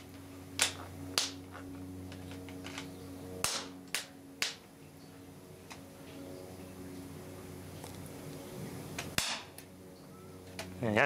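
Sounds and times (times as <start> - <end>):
sharp electrical snaps: 0.0 - 4.6, 8.9 - 9.7
low electrical hum: 0.0 - 11.0.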